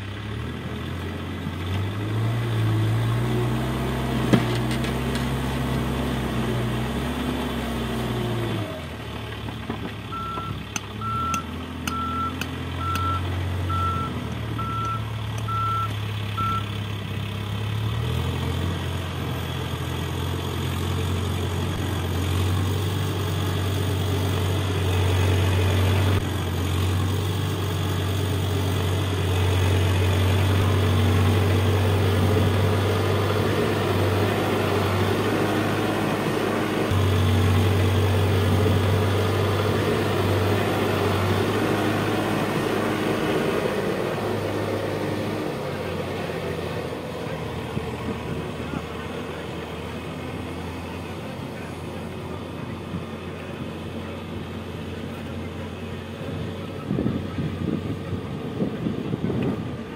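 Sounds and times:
diesel engine running: 0:00.0 - 0:59.9
reversing alarm beeping: 0:10.1 - 0:16.7.

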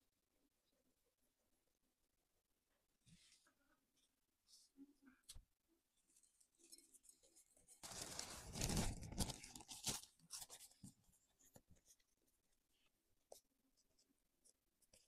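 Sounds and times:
plastic wrap crinkling: 0:06.6 - 0:10.8.

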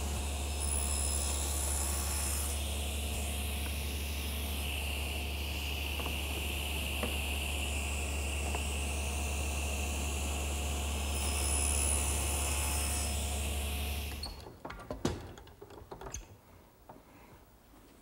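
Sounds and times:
table saw running: 0:00.0 - 0:14.2.

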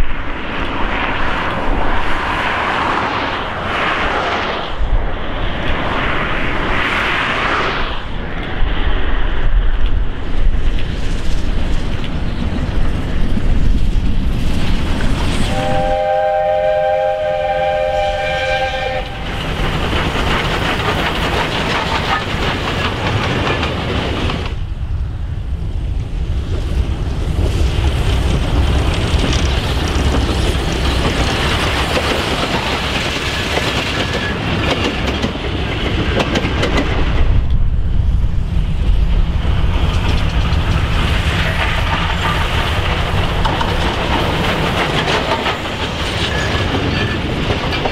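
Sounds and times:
steam locomotive running: 0:00.0 - 0:47.9
wheels rumbling on rails: 0:00.0 - 0:47.9
steam whistle chord: 0:15.5 - 0:19.3.

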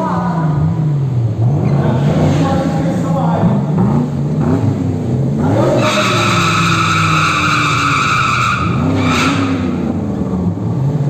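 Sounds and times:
car engine revving: 0:00.0 - 0:11.0
tyres squealing: 0:05.6 - 0:09.8.

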